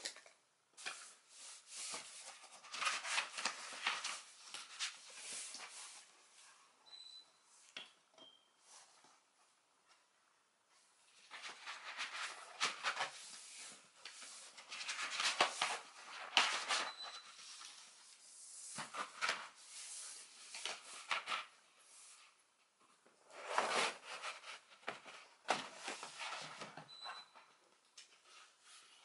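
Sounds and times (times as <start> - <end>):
paper and board rustling: 0.8 - 6.6, 11.1 - 22.4, 23.0 - 26.9.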